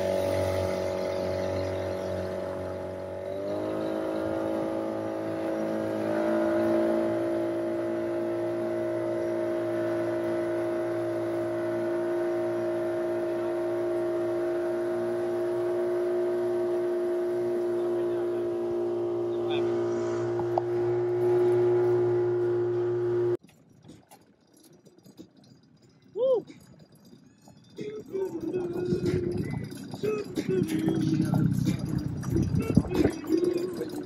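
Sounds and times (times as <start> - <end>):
boat motor droning: 0.0 - 23.4, 24.0 - 34.0
wake rushing under hull: 0.0 - 23.4.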